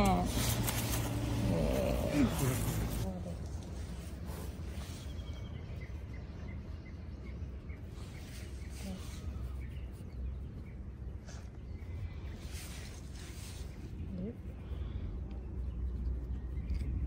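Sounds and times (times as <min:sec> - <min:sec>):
low outdoor rumble: 0:00.0 - 0:17.0
bird chirping: 0:04.4 - 0:14.3.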